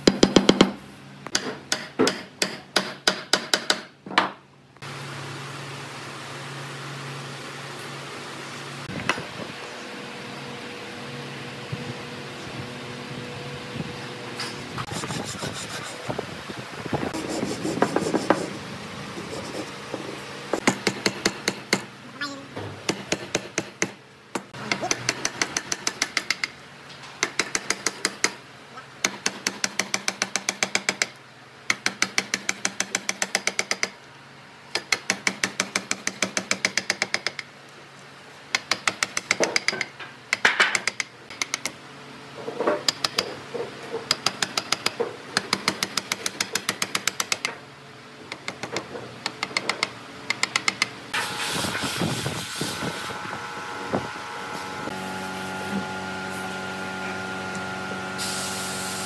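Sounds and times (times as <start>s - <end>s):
hammer tapping chisel into wood: 0.1s - 4.4s.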